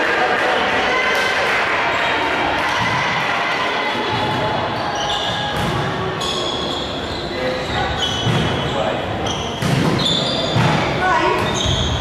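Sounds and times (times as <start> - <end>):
din of voices in hall: 0.0 - 12.0
volleyball hit: 9.6 - 11.8.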